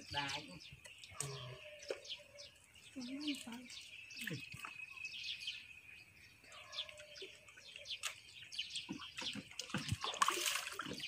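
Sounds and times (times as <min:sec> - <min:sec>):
small birds chirping: 0:00.0 - 0:11.0
muddy water splashing: 0:03.0 - 0:05.3, 0:06.5 - 0:11.0.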